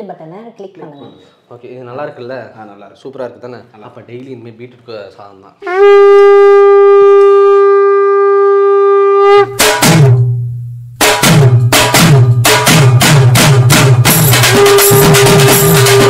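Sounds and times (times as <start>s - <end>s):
long held horn-like note: 5.6s - 9.6s
drum beat with deep bass hits: 9.5s - 16.0s.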